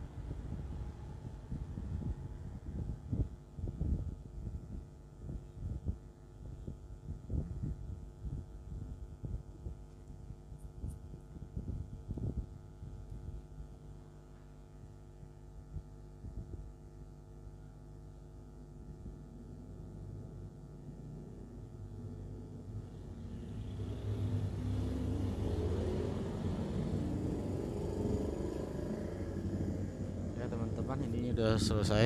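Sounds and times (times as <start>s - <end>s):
steady hum: 0.0s - 32.0s
vehicle passing by: 22.8s - 32.0s.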